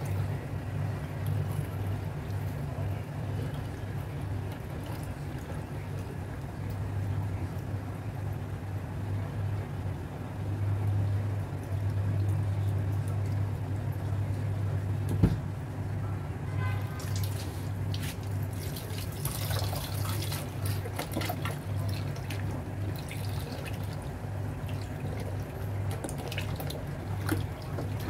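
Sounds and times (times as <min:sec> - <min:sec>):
steady low hum: 0:00.0 - 0:28.0
wet squelching and splashing: 0:16.9 - 0:28.0.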